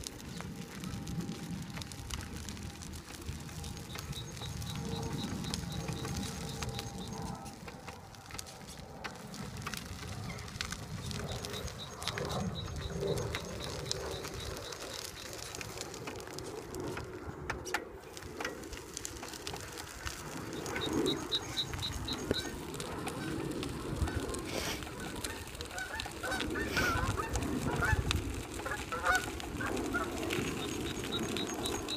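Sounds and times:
wheelchair rolling on gravel: 0.0 - 31.9
birds chirping: 3.3 - 7.7, 10.0 - 15.6, 20.3 - 22.7, 29.9 - 31.9.

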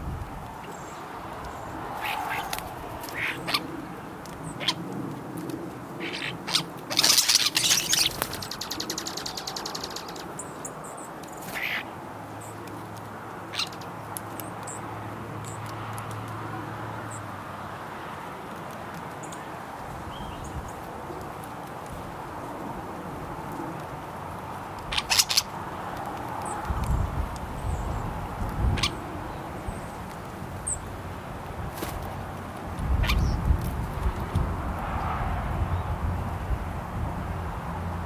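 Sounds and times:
starling calling: 0.6 - 4.8, 5.9 - 12.6, 13.4 - 14.8, 24.8 - 25.6, 28.7 - 29.9, 33.0 - 33.4.

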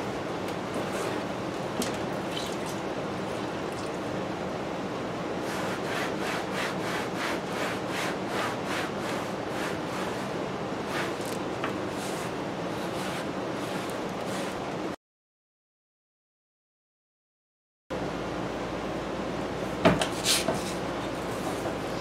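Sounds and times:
water splashing into basin: 2.3 - 4.0.

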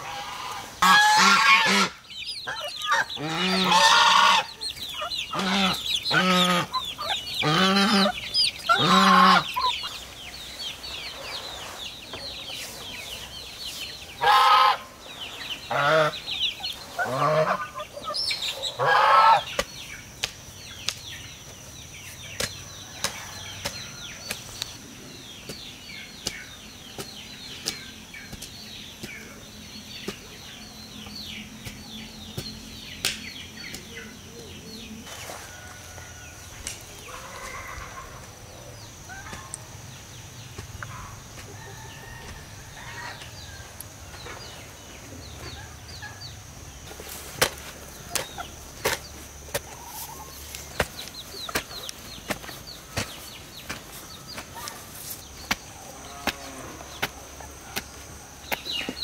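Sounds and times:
hens clucking: 0.0 - 20.2, 33.5 - 59.0
chicks peeping: 0.0 - 59.0.

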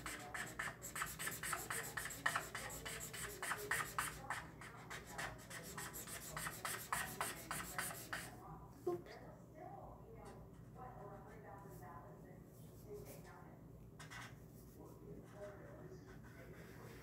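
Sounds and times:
marker scribbling on paper: 0.0 - 8.4.

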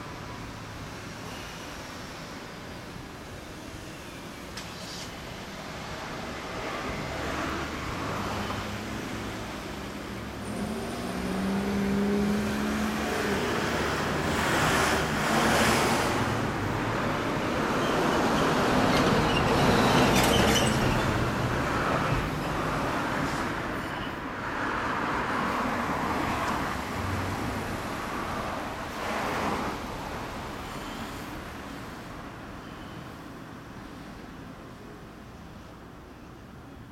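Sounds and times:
motor vehicles passing: 6.9 - 23.4.

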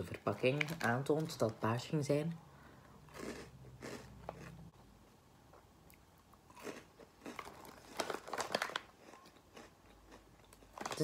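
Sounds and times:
person chewing crunchy crackers: 2.8 - 4.7, 5.6 - 11.0.

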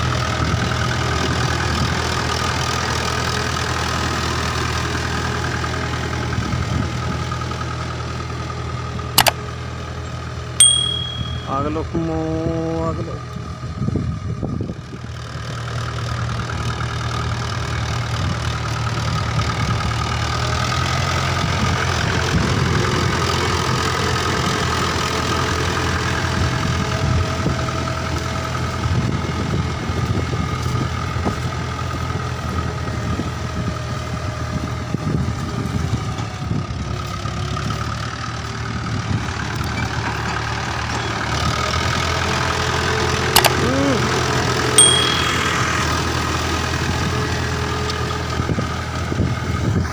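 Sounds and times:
tractor diesel engine under load: 0.0 - 10.6, 11.5 - 49.9.

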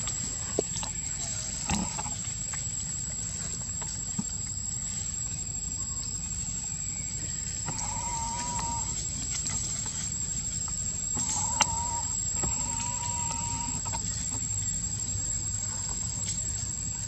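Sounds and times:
chicken calling: 7.6 - 9.0, 11.2 - 14.0.

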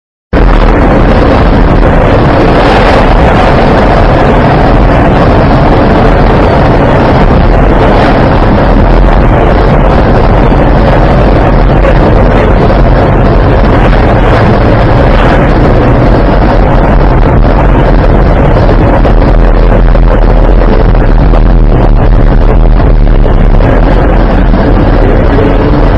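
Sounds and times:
road and wind noise in car: 0.3 - 25.9.

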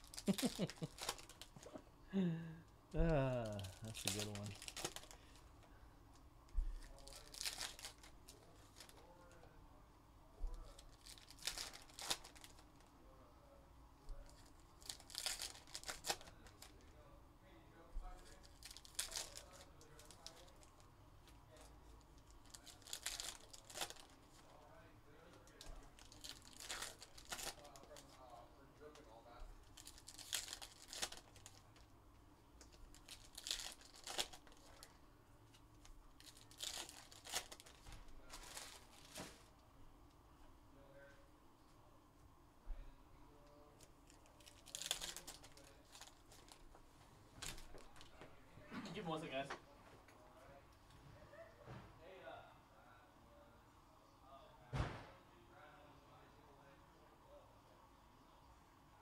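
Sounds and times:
foil wrappers tearing and crinkling: 0.0 - 1.7, 3.3 - 5.2, 6.8 - 9.1, 10.7 - 12.6, 14.2 - 16.8, 18.2 - 20.7, 22.2 - 24.6, 25.5 - 28.2, 29.6 - 31.8, 32.8 - 34.9, 36.2 - 39.4, 44.0 - 46.6.

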